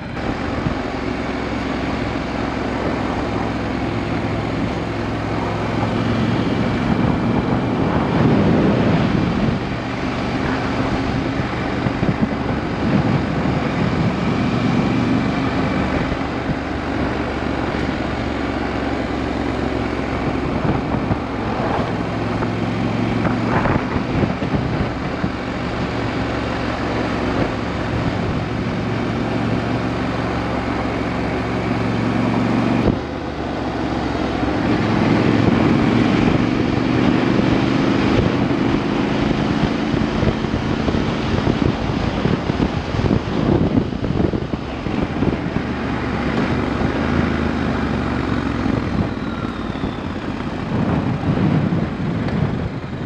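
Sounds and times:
motorcycle engine revving: 0:00.0 - 0:53.0
wind on microphone: 0:00.0 - 0:53.0.

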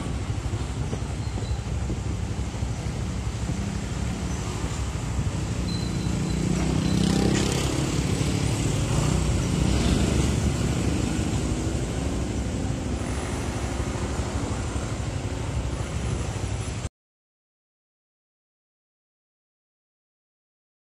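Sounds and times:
road noise: 0:00.0 - 0:16.9
motor scooters riding past: 0:03.2 - 0:16.6.

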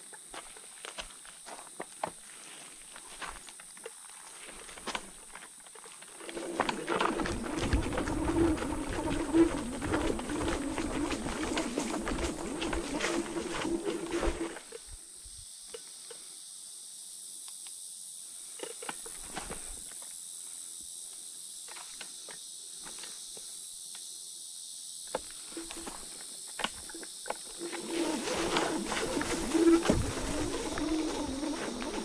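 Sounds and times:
twigs and leaves crackling: 0:00.4 - 0:14.8, 0:25.6 - 0:32.0
high-pitched insect drone: 0:02.4 - 0:32.0
scooter rattling over rough ground: 0:04.6 - 0:14.8, 0:25.6 - 0:32.0
electric scooter motor whining: 0:06.1 - 0:14.8, 0:27.4 - 0:32.0.

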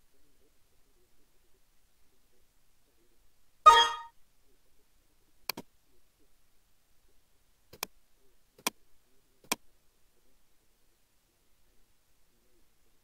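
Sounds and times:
computer mouse clicking: 0:05.5 - 0:05.7, 0:07.7 - 0:07.9.

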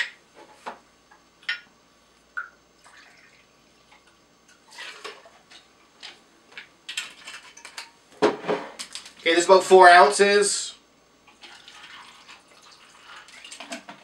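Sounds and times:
liquid pouring into glass: 0:02.8 - 0:03.4, 0:11.3 - 0:13.6.

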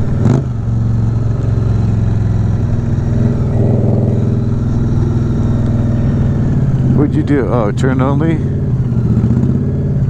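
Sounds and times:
motorcycle engine cruising: 0:00.0 - 0:10.0.

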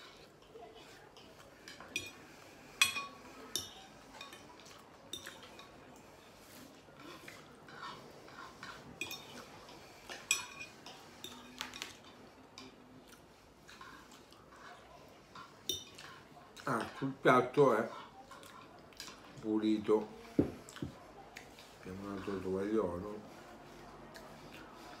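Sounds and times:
fork scraping ceramic plate: 0:07.0 - 0:11.9.

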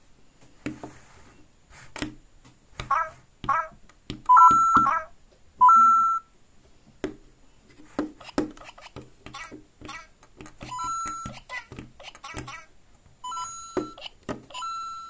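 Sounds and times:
two-note rising electronic beep: 0:05.6 - 0:06.2.

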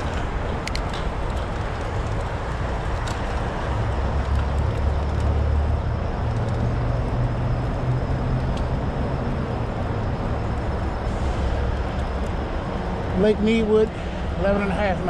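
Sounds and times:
tyres rolling on pavement: 0:00.0 - 0:15.0.

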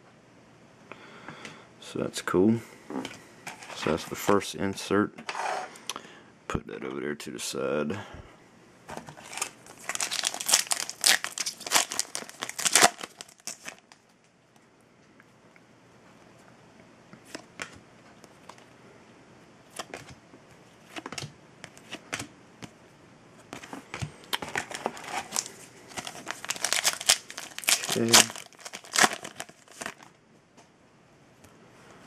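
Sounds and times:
foil wrapper crinkling: 0:09.1 - 0:14.1, 0:24.4 - 0:30.1.

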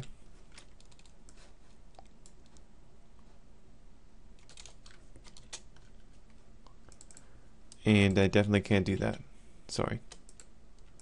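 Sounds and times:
faint steady hum: 0:00.0 - 0:11.0
keyboard keys clicking: 0:00.5 - 0:01.2, 0:04.4 - 0:06.0, 0:06.9 - 0:07.2.

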